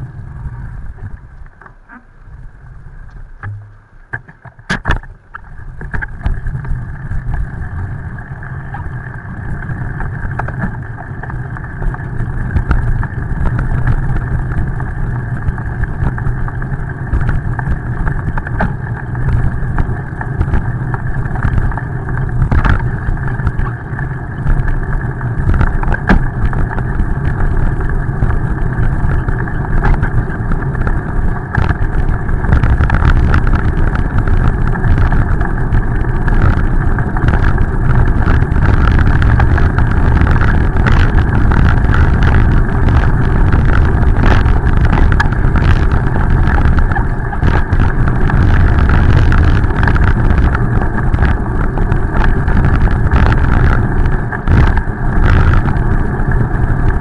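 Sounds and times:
tyres on wet pavement: 0.0s - 57.0s
wind on microphone: 0.0s - 57.0s
knocks from road bumps: 25.5s - 26.5s.

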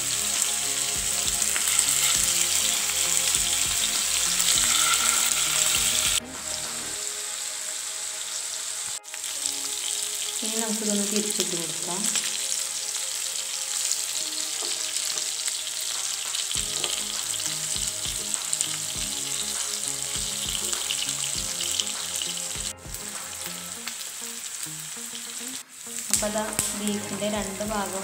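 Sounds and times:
meat sizzling in hot oil: 0.0s - 28.0s
spatula stirring in pan: 1.4s - 6.2s.

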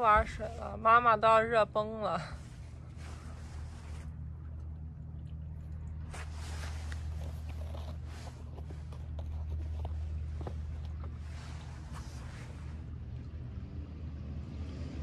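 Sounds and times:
steady low rumble: 0.0s - 14.4s
soft rustles: 2.2s - 4.4s, 6.0s - 13.1s.

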